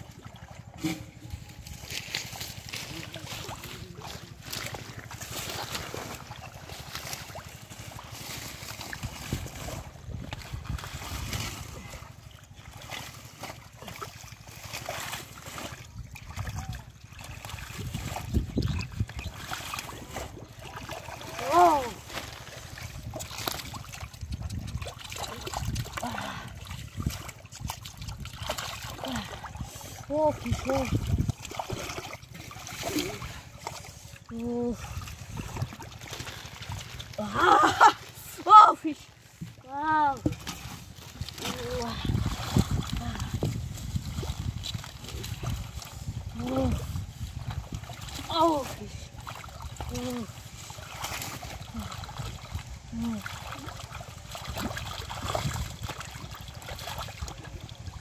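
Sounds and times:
muddy water splashing and trickling: 0:00.0 - 0:58.0
wet squelches and rustling: 0:00.0 - 0:58.0
wind rumble on microphone: 0:06.4 - 0:12.6, 0:15.3 - 0:20.7, 0:21.4 - 0:37.3, 0:39.4 - 0:58.0.

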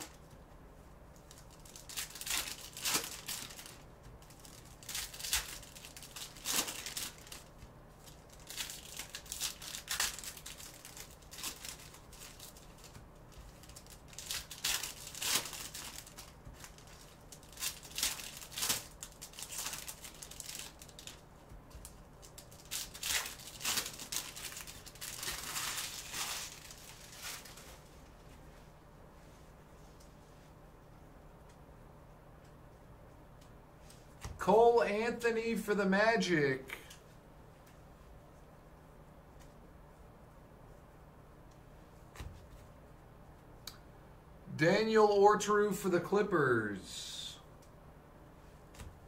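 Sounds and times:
foil wrappers crinkling and tearing: 0:01.2 - 0:27.9.

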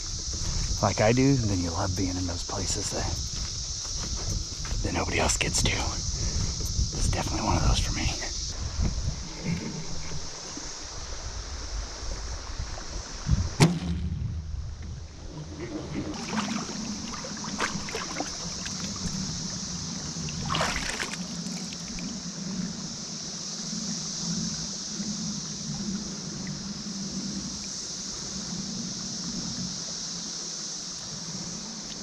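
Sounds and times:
steady hiss: 0:00.0 - 0:13.6, 0:14.3 - 0:32.0
water moving around boat: 0:00.0 - 0:13.8, 0:14.6 - 0:32.0
splash: 0:15.4 - 0:19.5, 0:20.2 - 0:22.1.

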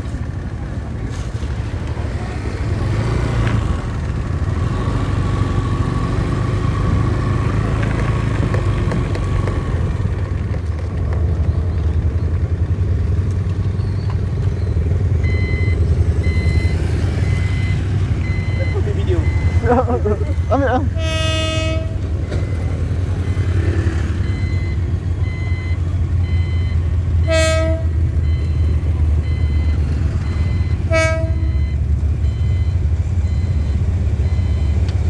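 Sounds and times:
road and wind noise: 0:00.0 - 0:35.0
level crossing signal beeping: 0:13.7 - 0:27.6, 0:28.2 - 0:35.0.

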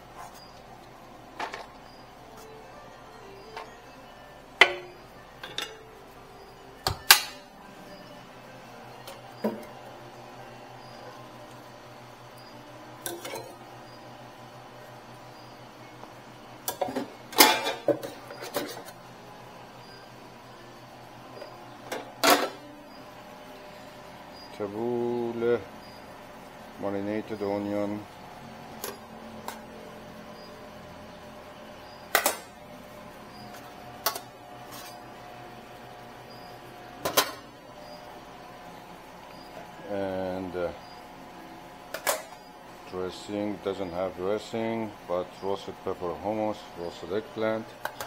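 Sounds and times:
steady low hum: 0:00.0 - 0:48.0
utensils and containers clattering: 0:04.6 - 0:05.9, 0:13.0 - 0:13.6, 0:16.6 - 0:19.0, 0:21.9 - 0:22.7, 0:37.0 - 0:37.5.

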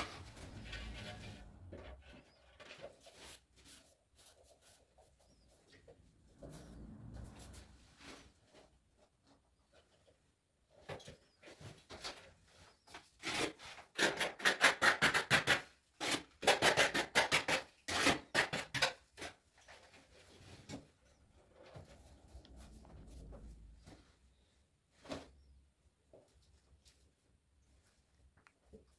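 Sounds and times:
trowel scraping tile adhesive: 0:13.2 - 0:19.3.

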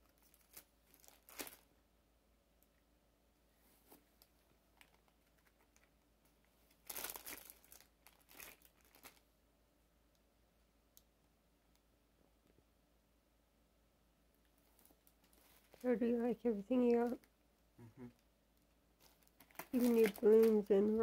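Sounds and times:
plastic wrappers crinkling: 0:00.0 - 0:01.7, 0:03.9 - 0:06.0, 0:06.7 - 0:09.2, 0:14.6 - 0:16.0, 0:19.0 - 0:21.0.

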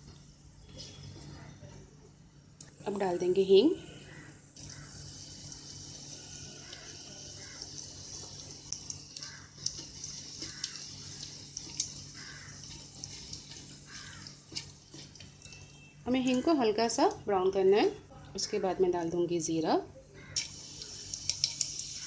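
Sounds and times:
hot oil sizzling: 0:04.6 - 0:17.2, 0:20.3 - 0:22.0.

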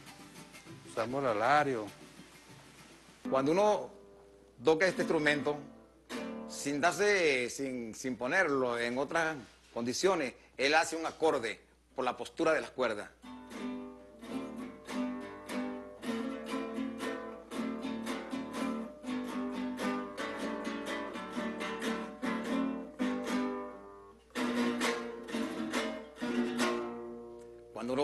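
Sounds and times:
small guitar strummed chords: 0:04.9 - 0:06.6, 0:13.2 - 0:27.8.

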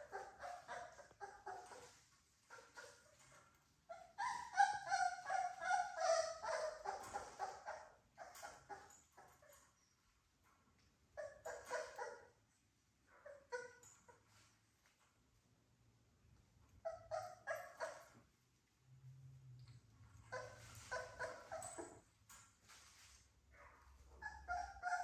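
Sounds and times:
puppies yapping and whimpering: 0:00.0 - 0:09.8, 0:11.2 - 0:12.4, 0:13.2 - 0:14.2, 0:16.8 - 0:18.2, 0:20.3 - 0:22.1, 0:23.9 - 0:25.0.

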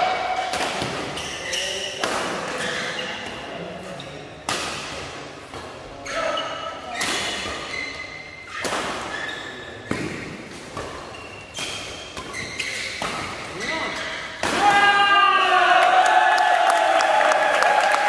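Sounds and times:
sneakers squeaking on court: 0:00.8 - 0:04.3, 0:06.0 - 0:14.4.

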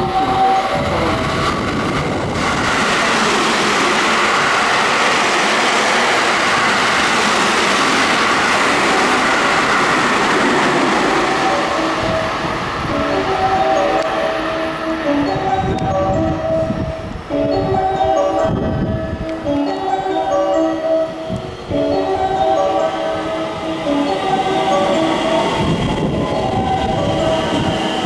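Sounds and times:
train wheel and running noise: 0:00.0 - 0:28.0.

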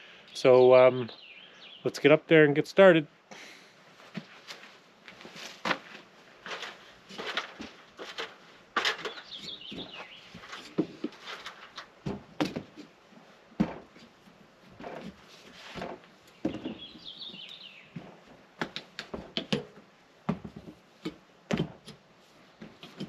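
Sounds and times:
bird chirping: 0:00.3 - 0:02.0, 0:08.9 - 0:10.8, 0:16.3 - 0:18.0
boots and hands on ladder: 0:04.0 - 0:23.0.

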